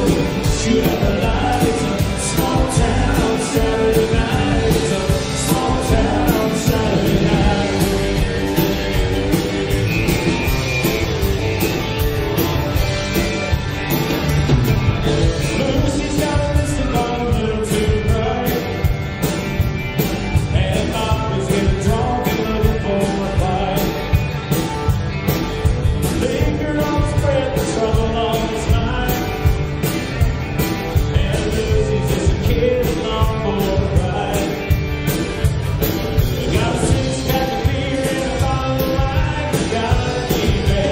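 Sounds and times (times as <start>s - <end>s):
man singing lead: 0.0s - 10.5s, 15.2s - 19.4s, 20.3s - 24.6s, 26.0s - 30.0s, 30.6s - 35.3s, 36.2s - 40.9s
country rock band playing: 0.0s - 40.9s.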